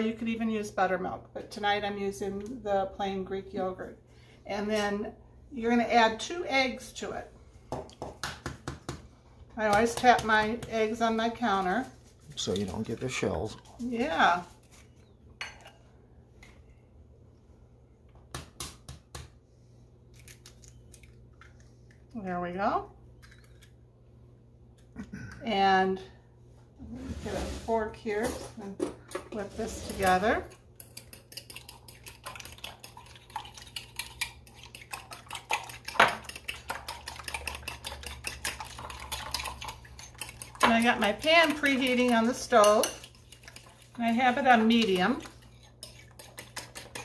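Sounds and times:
egg tapped on countertop: 0:07.7 - 0:09.1, 0:18.3 - 0:19.3
low steady hum: 0:09.0 - 0:47.0
fork whisking in glass bowl: 0:29.4 - 0:47.0.

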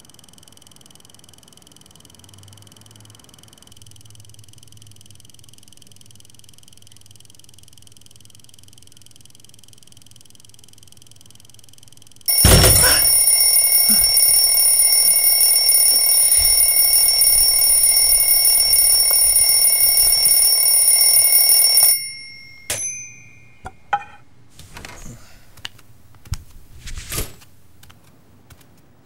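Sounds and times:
alarm clock ringing: 0:12.3 - 0:23.9.

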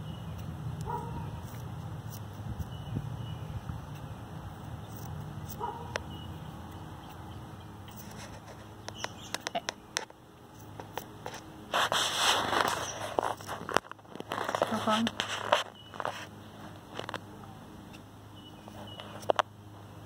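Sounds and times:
rustling: 0:07.9 - 0:17.2
small sharp clicks: 0:08.8 - 0:11.1.

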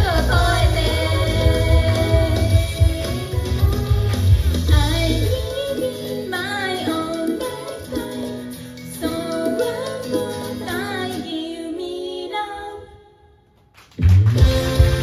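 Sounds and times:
song with heavy bass beat: 0:00.0 - 0:05.5, 0:14.1 - 0:15.0
pop song with female singing: 0:00.0 - 0:13.2.

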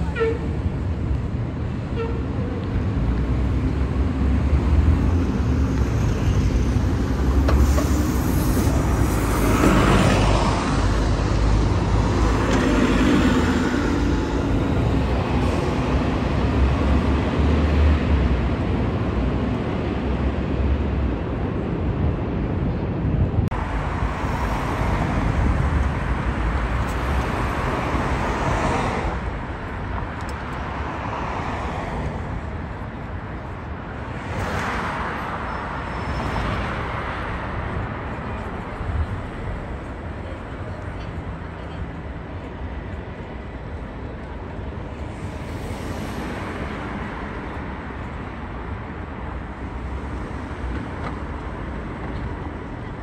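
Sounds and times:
bus diesel engine rumbling: 0:00.0 - 0:17.4, 0:37.4 - 0:45.4
bus approaching: 0:00.0 - 0:31.0
cars passing: 0:00.0 - 0:53.0.

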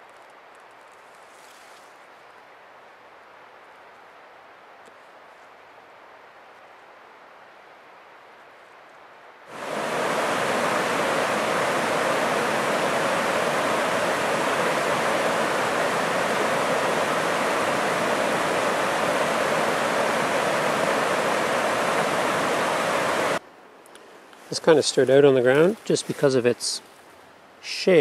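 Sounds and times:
river rushing over rocks: 0:09.5 - 0:23.4.

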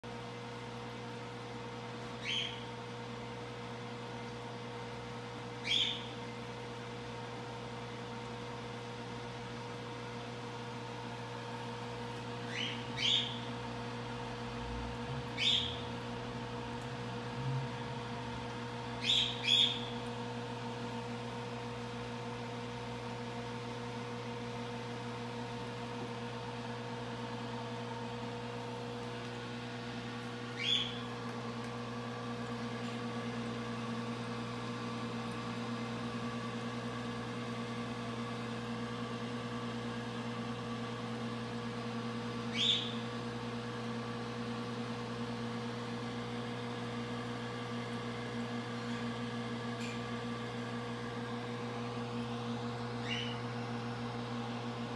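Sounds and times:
aquarium pump humming: 0:00.0 - 0:54.9
bird chirping: 0:02.2 - 0:02.6, 0:05.6 - 0:06.1, 0:12.5 - 0:13.5, 0:15.4 - 0:15.8, 0:19.0 - 0:20.0, 0:30.6 - 0:31.0, 0:42.6 - 0:43.0, 0:53.0 - 0:53.4.

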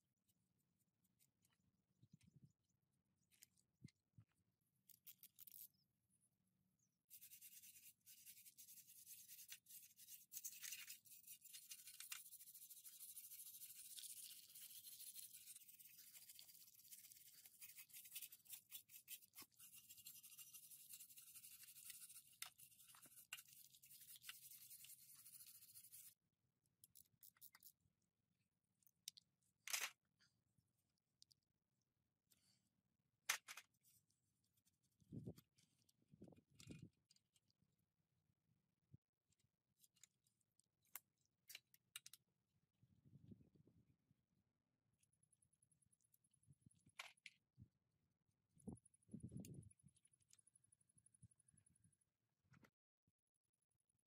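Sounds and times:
wire brush scrubbing chain: 0:07.1 - 0:26.1.

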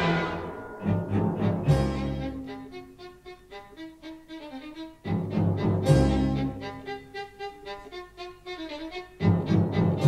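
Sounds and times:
low bowed strings music: 0:00.0 - 0:10.0.

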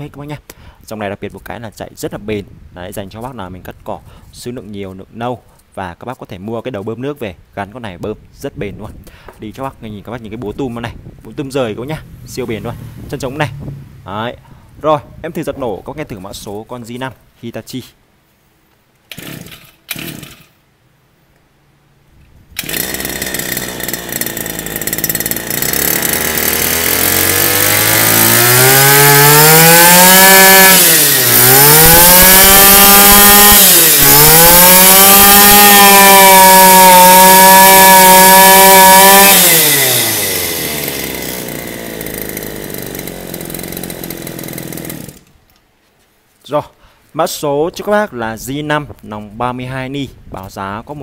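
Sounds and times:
brush cutter engine revving: 0:19.1 - 0:20.5, 0:22.6 - 0:45.4
starter cord tugs: 0:19.1 - 0:20.5, 0:22.6 - 0:45.4.

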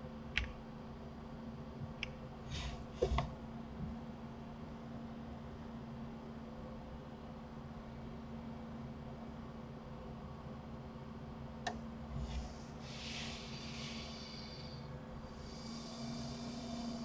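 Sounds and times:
faint room hum: 0:00.0 - 0:17.0
breathing close to microphone: 0:12.1 - 0:17.0.

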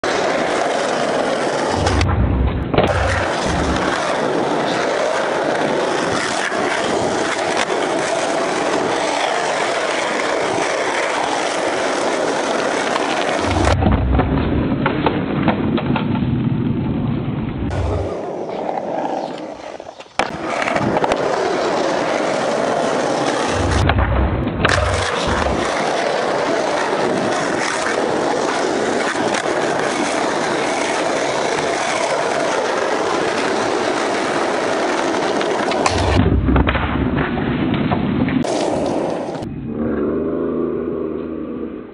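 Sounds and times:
skateboard wheels rolling on asphalt: 0:00.0 - 0:41.9
low thuds: 0:01.7 - 0:03.9, 0:13.4 - 0:14.6, 0:23.5 - 0:25.6, 0:35.9 - 0:37.3.

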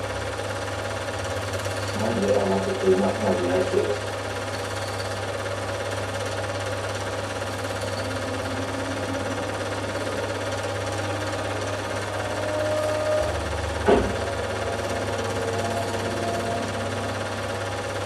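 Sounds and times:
film projector clatter: 0:00.0 - 0:13.0.

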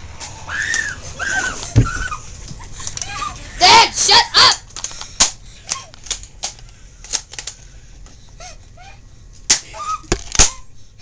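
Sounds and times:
objects being handled clicking: 0:04.6 - 0:07.7.

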